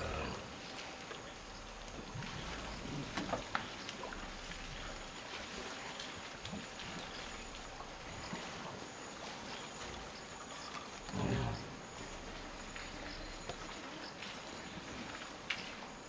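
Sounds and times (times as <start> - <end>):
elephant low call: 0.0 - 0.6, 10.6 - 14.0
insects chirping and buzzing: 0.0 - 16.0.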